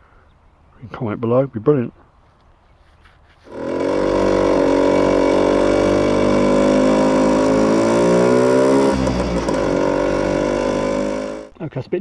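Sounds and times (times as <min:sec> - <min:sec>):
scooter engine at raised revs: 0:03.4 - 0:11.6.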